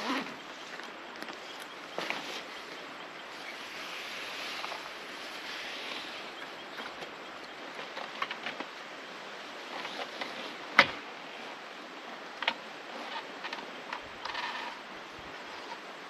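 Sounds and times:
steady outdoor hiss: 0:00.0 - 0:16.0.

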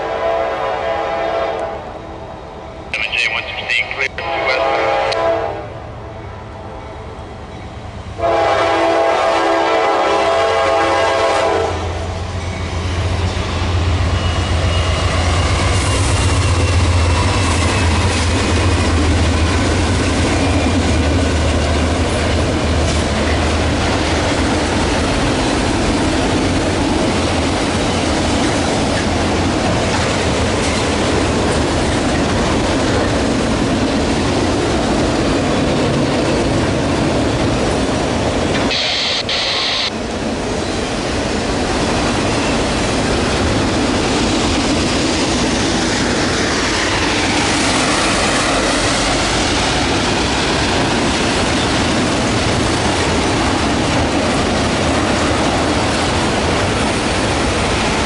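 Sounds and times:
locomotive air horn chord: 0:00.0 - 0:01.9, 0:04.2 - 0:05.7, 0:08.2 - 0:11.9
train wheels clickety-clack on rails: 0:07.5 - 0:38.8, 0:40.0 - 0:58.0
deep locomotive engine drone: 0:10.3 - 0:58.0.

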